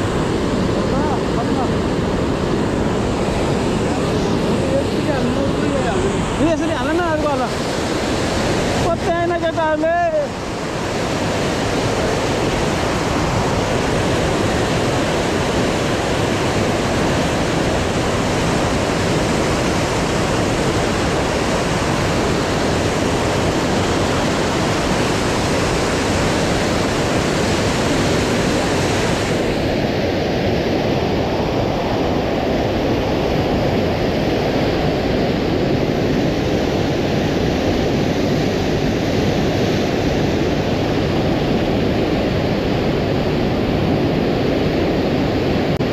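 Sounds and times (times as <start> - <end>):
river rushing over rocks: 0.0 - 30.2.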